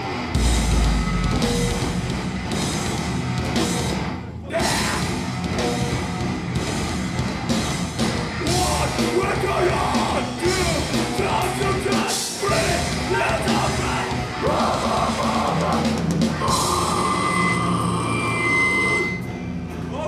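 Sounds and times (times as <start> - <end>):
metal band playing live: 0.0 - 20.0
person shouting and screaming: 4.5 - 5.2.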